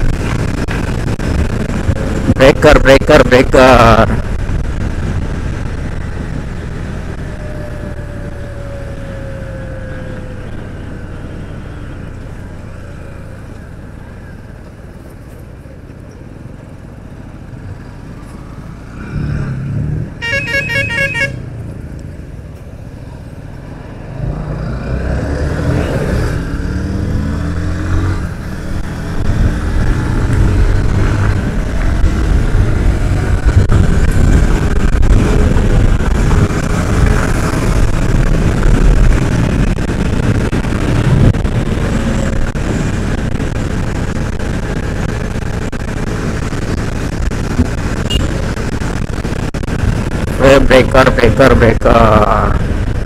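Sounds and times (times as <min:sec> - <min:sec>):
wind noise: 0:00.0 - 0:15.3, 0:21.9 - 0:53.0
motorcycle engine: 0:04.1 - 0:53.0
vehicle horn honking: 0:20.2 - 0:21.4, 0:48.1 - 0:48.3.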